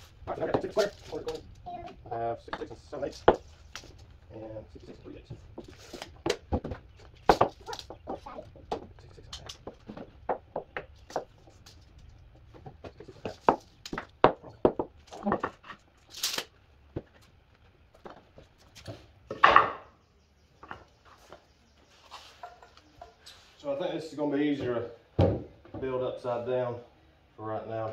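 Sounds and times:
wooden blocks knocking on concrete: 0:02.5 - 0:03.5, 0:05.3 - 0:15.8.

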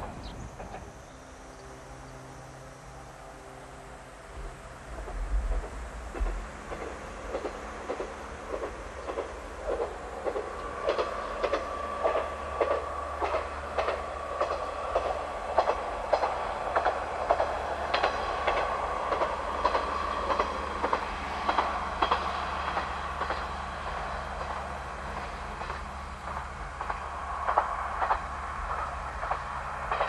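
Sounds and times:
train wheels clicking over rail joints: 0:00.0 - 0:01.7, 0:04.4 - 0:30.0.

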